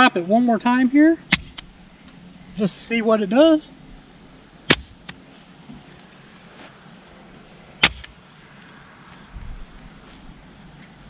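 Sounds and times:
pistol hitting grass: 0:01.3 - 0:01.8, 0:04.6 - 0:05.2, 0:07.8 - 0:08.2.

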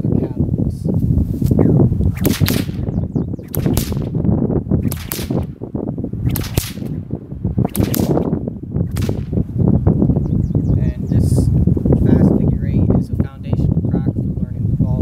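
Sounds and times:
whip cracking: 0:01.4 - 0:04.2, 0:04.8 - 0:05.5, 0:06.2 - 0:07.0, 0:07.6 - 0:09.4.

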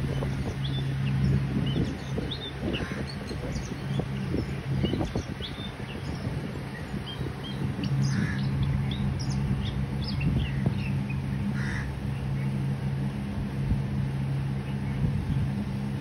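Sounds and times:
low machine hum: 0:00.0 - 0:16.0.

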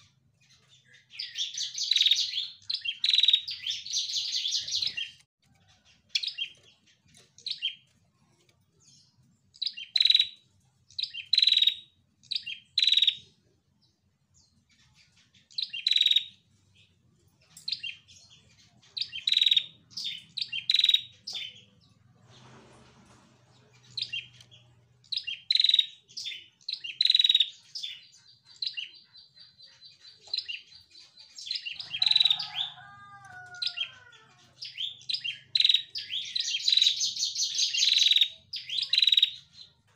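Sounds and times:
bird chirping: 0:00.0 - 0:39.9.

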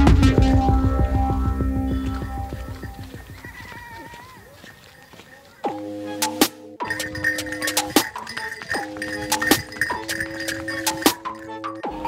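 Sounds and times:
background music with a beat: 0:00.0 - 0:03.6, 0:05.7 - 0:12.0
animal bleating faintly: 0:03.0 - 0:04.8.

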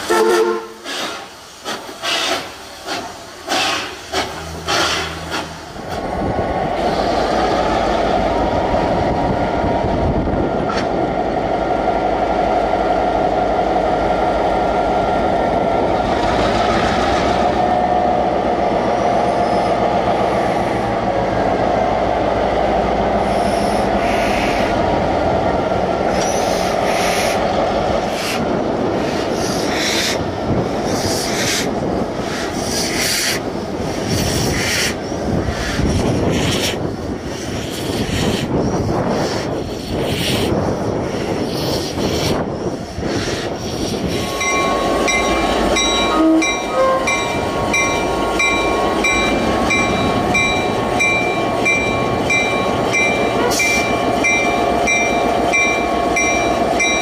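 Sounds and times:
steam locomotive puffing: 0:00.0 - 0:05.8
diesel locomotive engine running: 0:00.0 - 0:57.0
rail and wheel rumble: 0:00.0 - 0:57.0.

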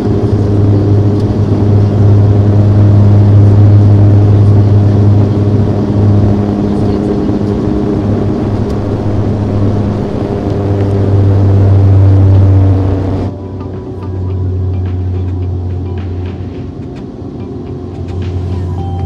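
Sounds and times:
airplane engine drone in cabin: 0:00.0 - 0:19.0.

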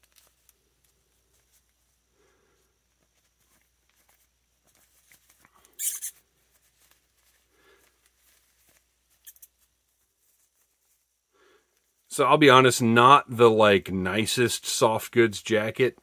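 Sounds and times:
cloth jacket rustling on plastic: 0:02.9 - 0:11.2.

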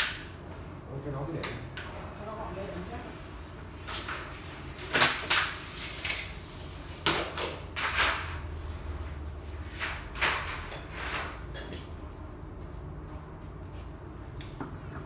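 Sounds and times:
metal strips clattering and scraping: 0:09.6 - 0:11.8.

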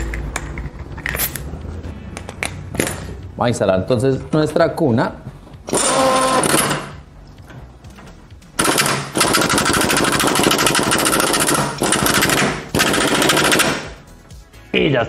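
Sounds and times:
impact wrench hammering: 0:05.7 - 0:07.0, 0:08.6 - 0:14.0.

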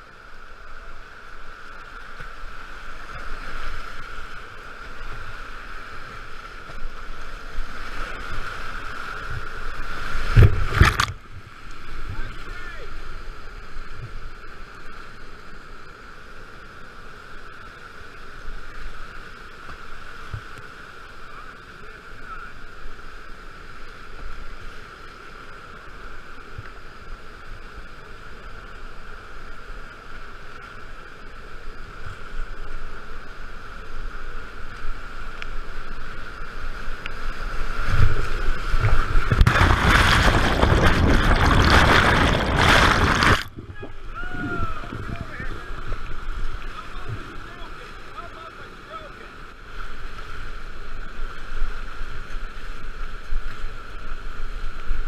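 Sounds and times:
underwater churning rush: 0:02.4 - 0:12.4, 0:36.2 - 0:53.3
whitewater rapids rushing: 0:35.1 - 0:51.9.

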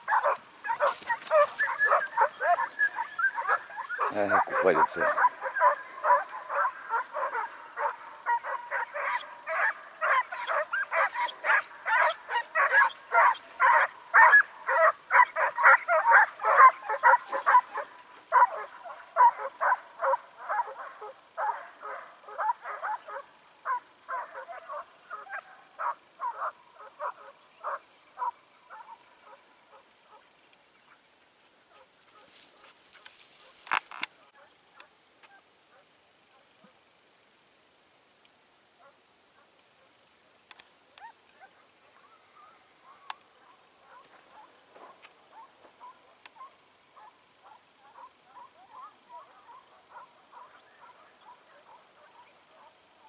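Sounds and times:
hound yelping bays: 0:00.1 - 0:29.0.

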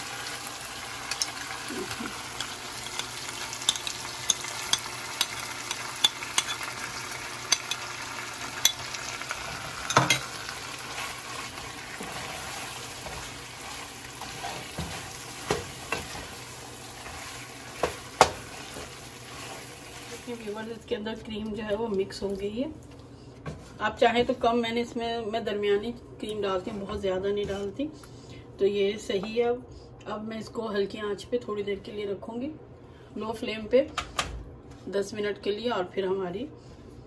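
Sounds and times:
food sizzling: 0:00.0 - 0:20.7
spoon scraping a pan: 0:01.1 - 0:16.4.

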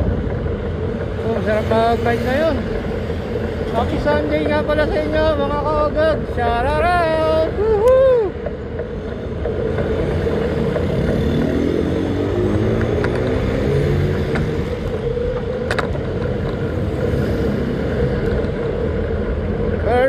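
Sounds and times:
passing vehicles rumble: 0:00.0 - 0:20.0
vehicle engine revving: 0:08.8 - 0:19.9.

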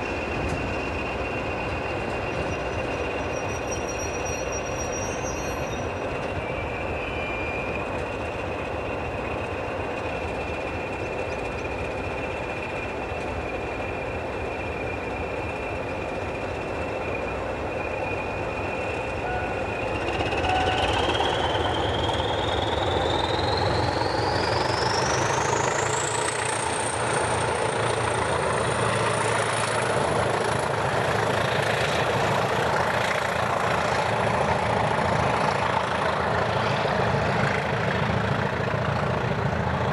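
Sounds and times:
high turbocharger whistle: 0:00.0 - 0:09.8, 0:12.2 - 0:32.2
diesel locomotive engines running: 0:00.0 - 0:39.9.

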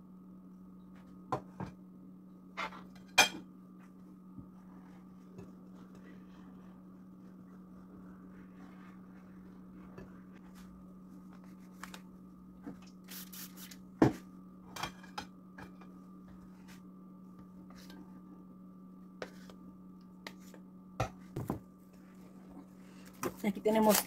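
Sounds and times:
steady hum: 0:00.0 - 0:24.0
spray bottle spritzes: 0:13.1 - 0:13.8.

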